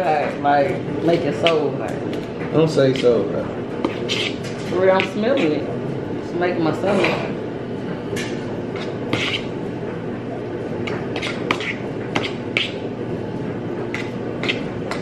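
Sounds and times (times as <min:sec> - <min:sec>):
steady low hum: 0:00.0 - 0:15.0
forks clicking and scraping bowls: 0:00.3 - 0:02.3, 0:02.9 - 0:05.6, 0:08.2 - 0:09.6, 0:10.8 - 0:12.8, 0:13.9 - 0:15.0.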